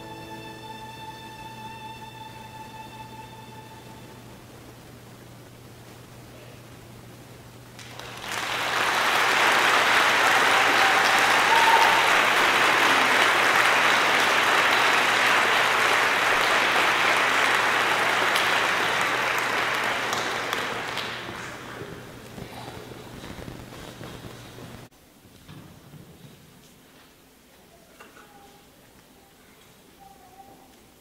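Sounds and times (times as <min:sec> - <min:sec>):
audience applauding: 0:07.8 - 0:23.0.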